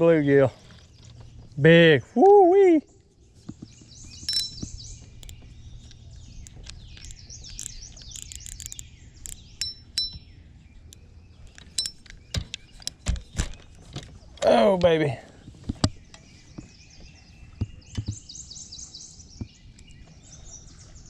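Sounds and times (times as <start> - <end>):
songbirds chirping: 0.0 - 21.0
sharp clicks: 4.3 - 10.2.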